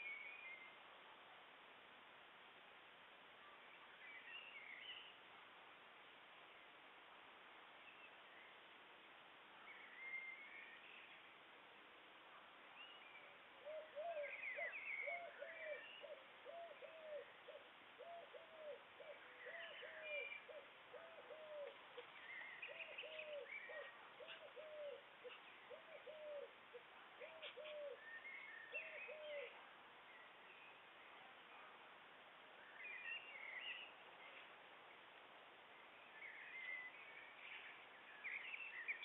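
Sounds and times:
small birds chirping: 0:12.4 - 0:31.9, 0:32.5 - 0:39.0.

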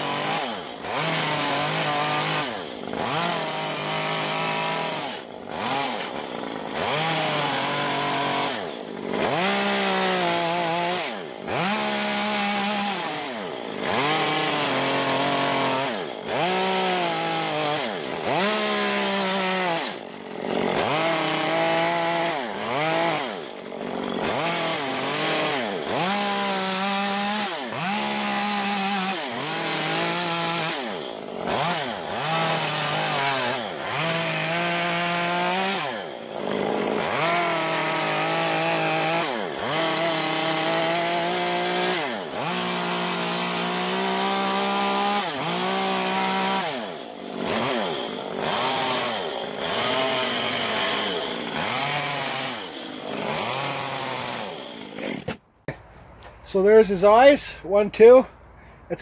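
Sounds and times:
chainsaw revving: 0:00.0 - 0:55.4.

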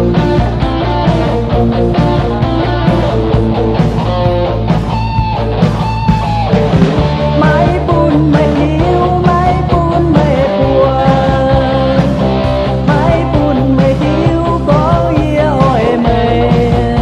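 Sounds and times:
rock music with guitar: 0:00.0 - 0:17.0.

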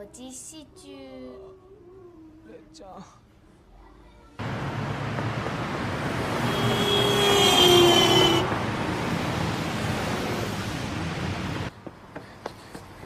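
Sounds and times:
city street traffic: 0:03.2 - 0:13.0
vehicle passing close: 0:04.4 - 0:11.7.

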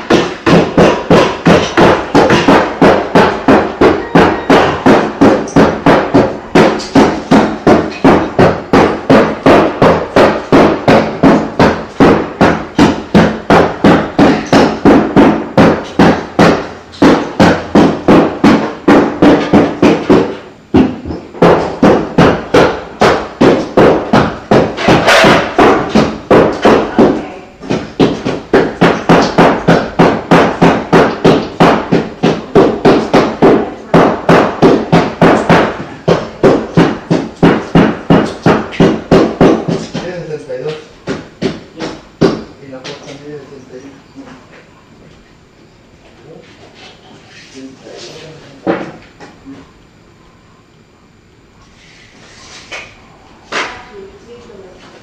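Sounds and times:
hammer striking rhythmically: 0:00.0 - 0:40.0.

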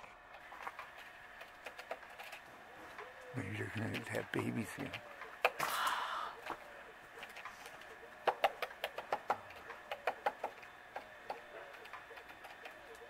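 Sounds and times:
woodpecker tapping on bark: 0:00.8 - 0:02.4, 0:08.2 - 0:13.0.

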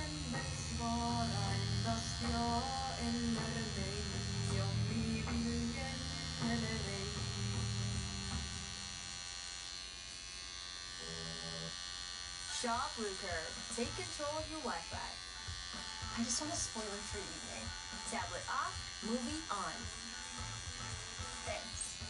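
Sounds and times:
background music: 0:00.0 - 0:08.8, 0:13.5 - 0:22.0
tattoo machine buzzing: 0:00.0 - 0:22.0.

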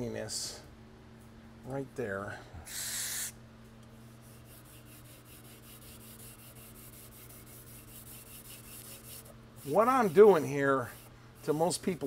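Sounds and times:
steady low hum: 0:00.0 - 0:12.0
pad scrubbing on wood: 0:04.2 - 0:12.0.

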